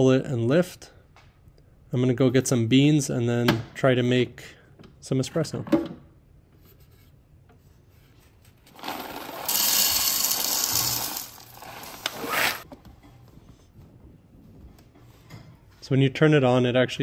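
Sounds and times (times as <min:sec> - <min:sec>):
coffee beans rattling into hopper: 0:08.7 - 0:12.6.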